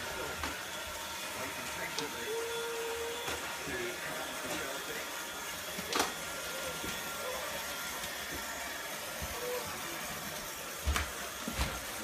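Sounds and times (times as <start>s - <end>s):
toy train motors whirring: 5.6s - 12.0s.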